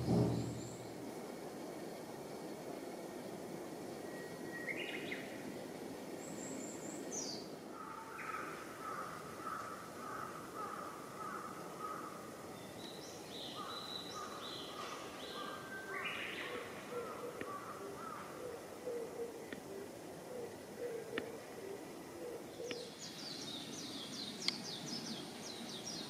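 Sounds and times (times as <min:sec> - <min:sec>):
outdoor background hiss: 0:00.0 - 0:26.0
wild birds calling: 0:04.0 - 0:26.0.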